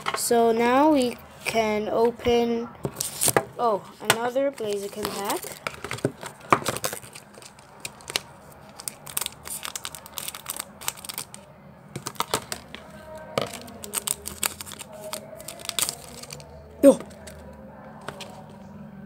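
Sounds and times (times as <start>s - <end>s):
foil wrapper crinkling: 4.6s - 11.4s, 12.0s - 17.4s
scissors snipping foil: 13.4s - 17.4s.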